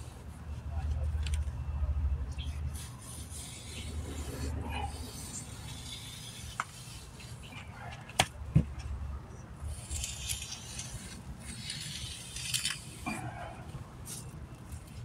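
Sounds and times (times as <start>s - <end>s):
metal tool scraping mortar: 2.9s - 7.8s, 9.7s - 13.4s.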